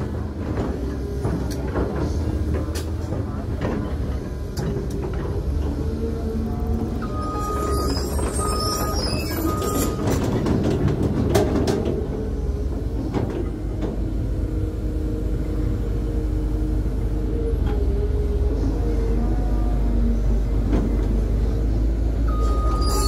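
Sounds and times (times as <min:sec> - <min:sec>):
excavator diesel engine running: 0:00.0 - 0:23.0
short high beeps: 0:22.3 - 0:23.0.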